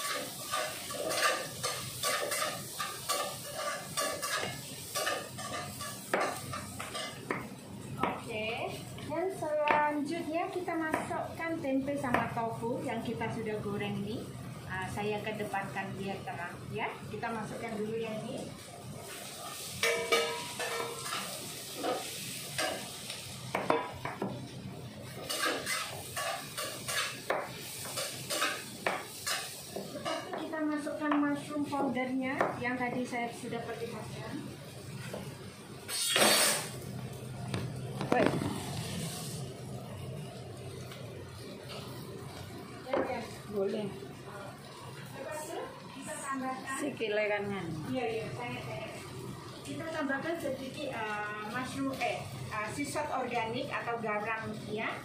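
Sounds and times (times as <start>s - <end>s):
spatula scraping a pan: 0.0s - 7.2s, 25.2s - 30.2s, 35.9s - 36.7s
light sizzle: 0.0s - 55.0s.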